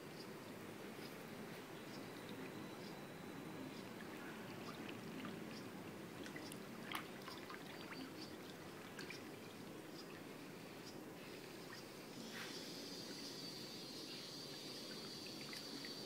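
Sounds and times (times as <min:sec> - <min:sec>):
pool water lapping: 0:00.8 - 0:12.1, 0:14.4 - 0:16.0
small water splash: 0:06.2 - 0:09.6
water drips: 0:14.9 - 0:16.0.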